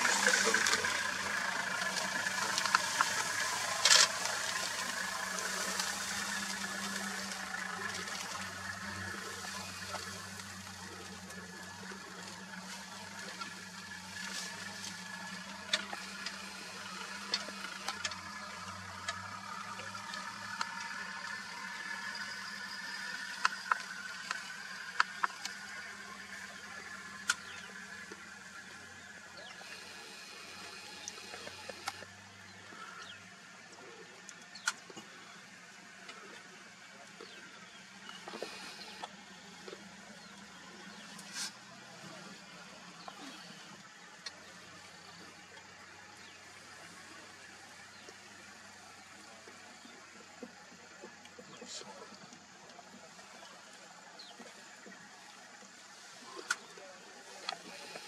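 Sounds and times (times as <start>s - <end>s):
steady high hiss: 0.0s - 58.0s.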